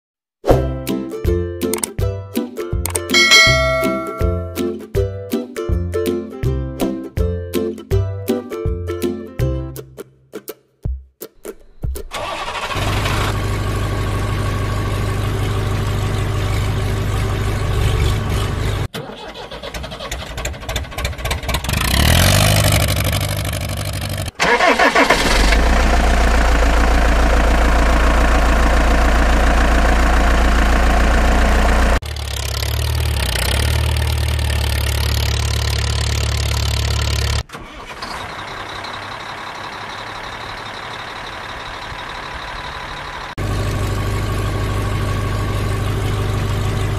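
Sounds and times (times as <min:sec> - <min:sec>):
engine revving: 0:12.2 - 0:18.9, 0:21.3 - 0:37.9
vehicle engine idling: 0:12.2 - 0:18.9, 0:22.8 - 0:37.4, 0:38.1 - 0:46.9.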